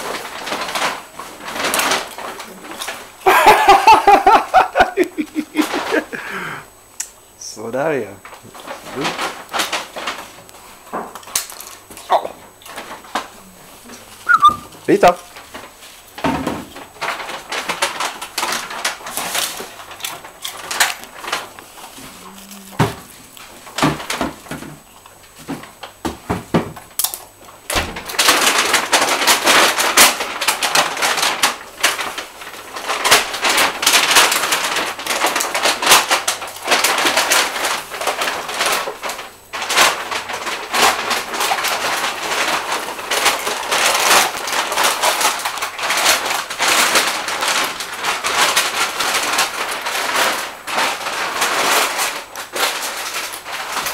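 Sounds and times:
potato chips crunching: 17.0s - 23.7s, 28.0s - 53.9s.

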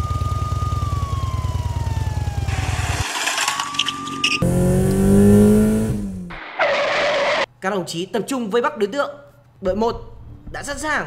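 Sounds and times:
police siren wailing: 0.0s - 4.4s
small engine puttering: 0.1s - 5.6s
engine revving: 4.4s - 7.5s.

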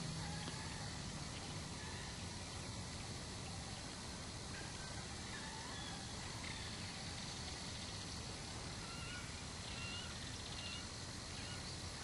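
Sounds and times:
low rumble and hiss: 0.0s - 12.0s
squeaky bird calls: 8.8s - 11.7s.

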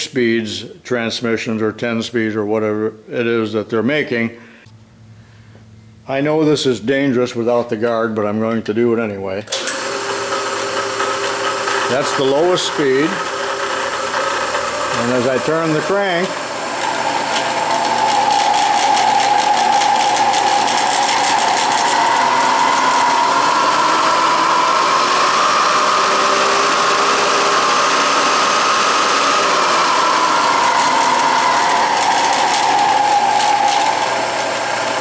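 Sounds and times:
drill press belt drive whining: 9.5s - 35.0s.

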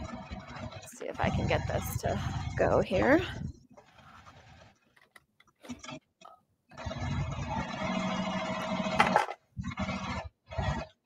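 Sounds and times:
sewing machine stitching: 3.7s - 11.0s.

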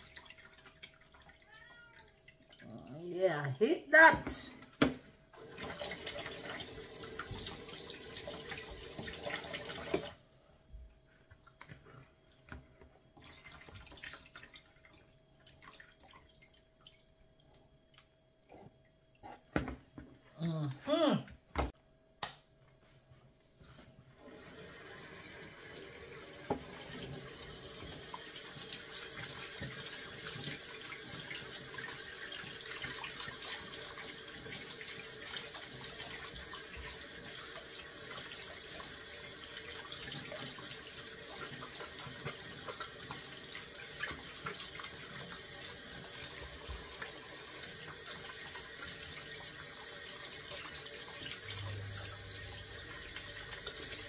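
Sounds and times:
tap water running into sink: 0.0s - 2.7s, 4.8s - 10.2s, 24.2s - 54.0s.

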